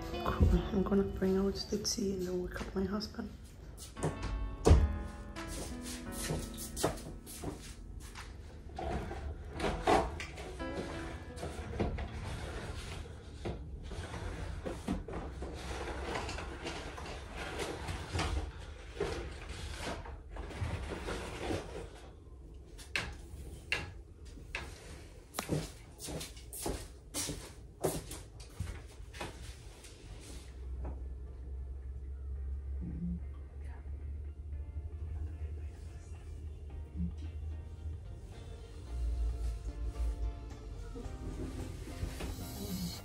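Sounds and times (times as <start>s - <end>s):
footsteps on bedroom floor: 0.0s - 12.0s, 24.3s - 31.1s, 40.9s - 43.0s
background music: 0.0s - 14.4s, 31.8s - 43.0s.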